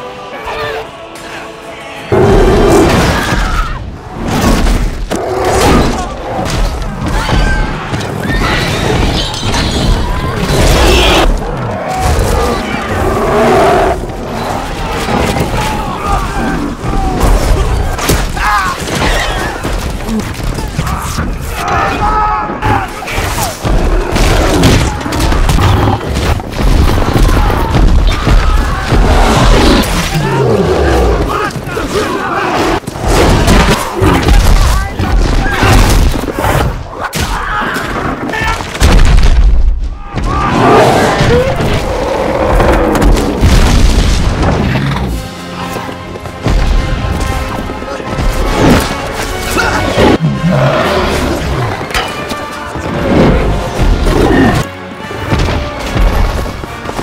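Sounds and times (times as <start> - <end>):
film music: 0.0 - 38.8, 39.8 - 57.0
heavy crashes and booms: 38.7 - 44.8
orchestral score: 44.2 - 57.0.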